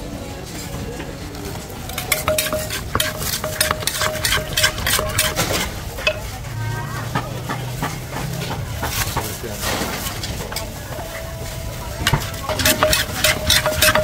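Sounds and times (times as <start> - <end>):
pestle knocking in clay mortar: 1.9 - 6.4, 12.0 - 14.0.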